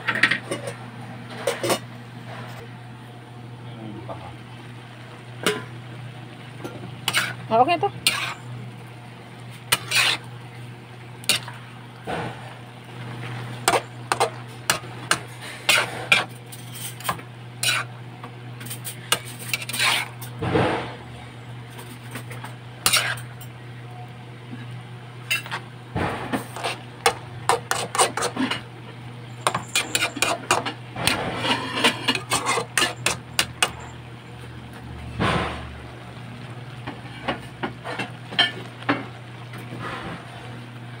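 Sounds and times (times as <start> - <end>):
food sizzling: 2.9 - 23.9, 24.8 - 41.0
spatula scraping a pan: 7.0 - 8.5, 9.5 - 10.3, 11.2 - 11.6, 13.6 - 17.9, 18.6 - 20.9, 22.8 - 23.4, 25.3 - 25.6, 26.4 - 28.7, 29.4 - 34.0.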